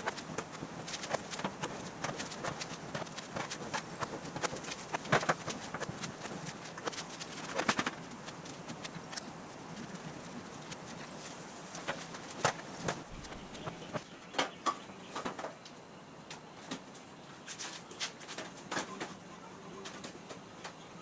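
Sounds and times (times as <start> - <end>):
metal sheet clicking and rattling: 0.0 - 11.1.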